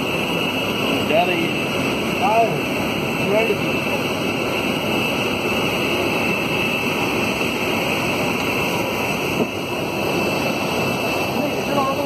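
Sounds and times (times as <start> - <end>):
high whine: 0.0 - 12.0.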